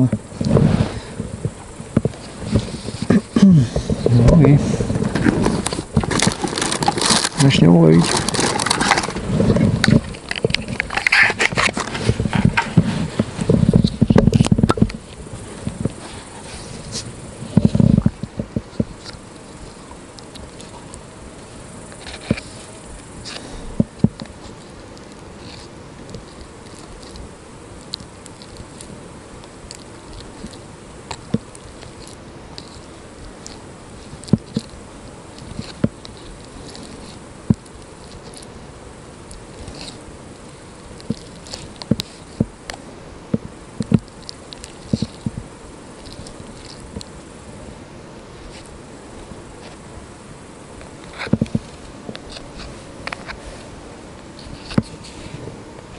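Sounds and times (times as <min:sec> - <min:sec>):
background hiss: 0:00.0 - 0:55.9.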